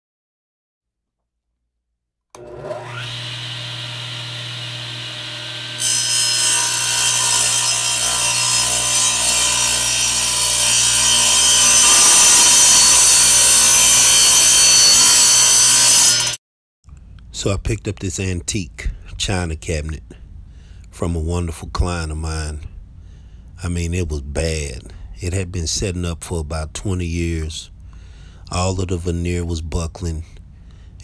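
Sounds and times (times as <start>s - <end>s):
power saw motor whining: 2.4s - 16.4s
saw blade cutting wood: 2.4s - 16.4s.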